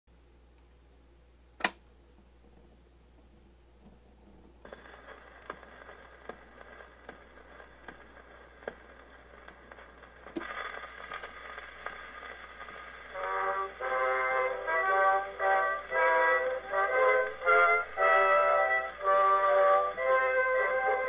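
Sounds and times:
record needle surface hiss: 0:00.1 - 0:21.0
steady low hum: 0:00.1 - 0:21.0
record clicks: 0:01.6 - 0:01.8, 0:03.8 - 0:13.9
music from record player: 0:04.6 - 0:21.0.

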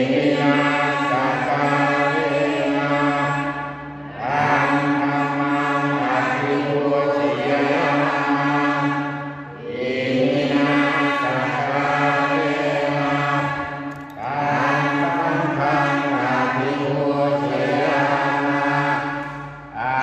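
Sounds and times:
man chanting into a microphone: 0:10.8 - 0:20.0.

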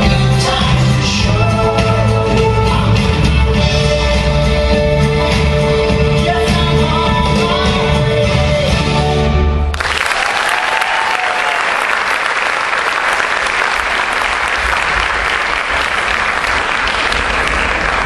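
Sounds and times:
audience applauding: 0:09.7 - 0:18.0.

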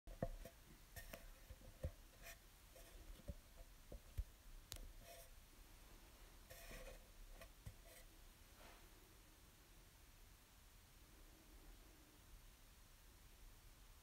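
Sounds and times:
soft rustles: 0:00.2 - 0:09.1.

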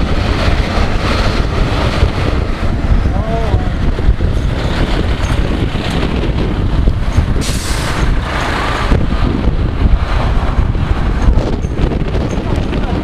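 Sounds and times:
fire engines driving past: 0:00.0 - 0:13.0
air brakes hissing: 0:07.4 - 0:08.2.

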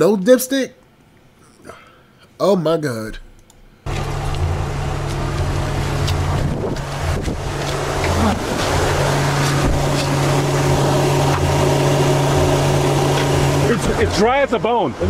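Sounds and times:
truck engine idling: 0:03.9 - 0:15.0
wind buffeting microphone: 0:05.4 - 0:10.8.

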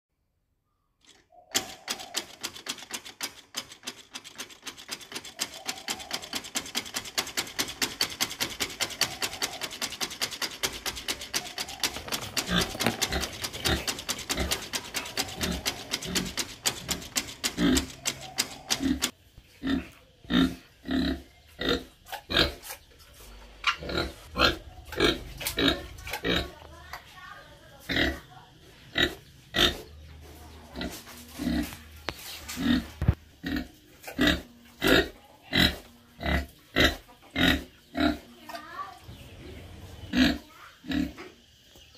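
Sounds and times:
pig grunting and snorting: 0:11.3 - 0:22.8, 0:23.6 - 0:26.6, 0:27.8 - 0:28.3, 0:28.9 - 0:30.0, 0:30.7 - 0:31.8, 0:32.5 - 0:38.4, 0:39.7 - 0:41.4.

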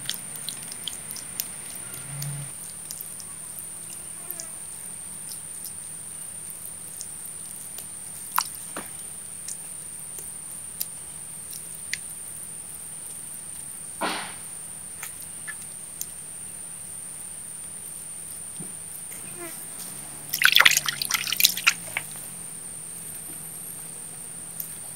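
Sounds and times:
loud knock: 0:14.0 - 0:14.4.

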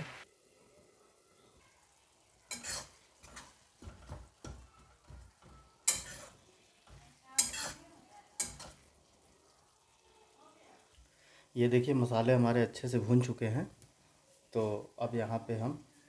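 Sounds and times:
steel spatula scraping metal pan: 0:02.5 - 0:04.1, 0:05.4 - 0:08.8.

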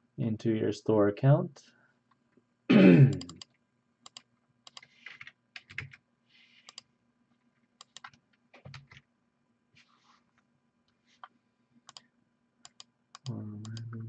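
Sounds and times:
faint keyboard typing: 0:03.2 - 0:09.1, 0:09.8 - 0:14.0.

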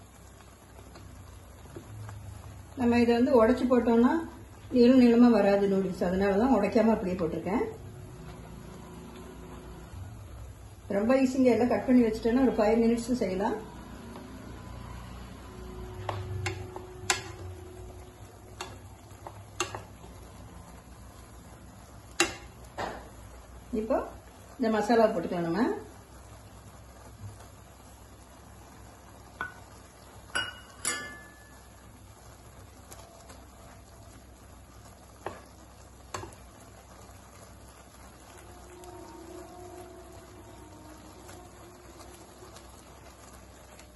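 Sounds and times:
faint sizzle: 0:00.0 - 0:43.9
spatula stirring noodles: 0:13.8 - 0:23.6, 0:26.0 - 0:43.9
wooden spatula tapping steel pan: 0:16.0 - 0:17.5, 0:18.5 - 0:20.0, 0:22.1 - 0:23.0, 0:29.4 - 0:29.7, 0:30.3 - 0:31.6, 0:35.2 - 0:35.5, 0:36.1 - 0:36.4.

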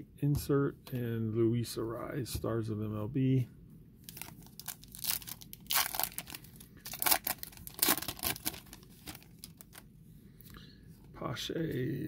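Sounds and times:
foil wrapper tearing and crinkling: 0:04.1 - 0:09.8.

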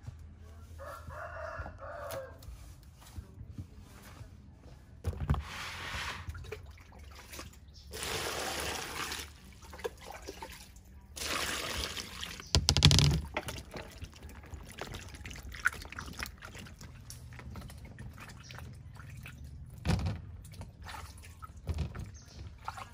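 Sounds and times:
water pouring into a plastic basin: 0:05.8 - 0:22.9.

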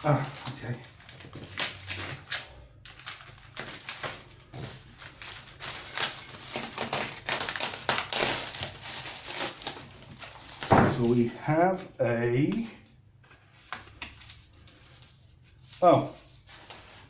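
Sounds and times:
plastic bags crinkling: 0:00.0 - 0:11.3
foam creaking and crackling: 0:05.0 - 0:11.5.

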